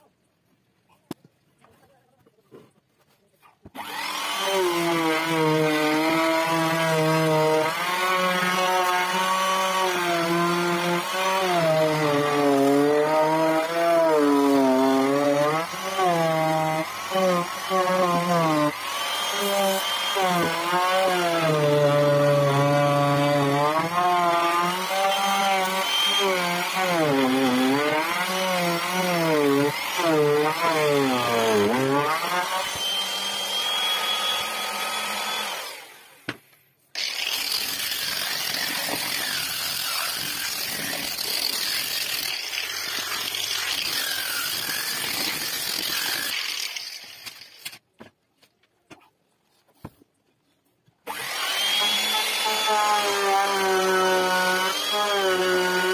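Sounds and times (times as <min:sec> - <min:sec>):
router cutting rasp: 0:03.7 - 0:36.2, 0:37.0 - 0:47.8, 0:51.1 - 0:55.9
router motor whine: 0:15.0 - 0:36.2, 0:51.1 - 0:55.9.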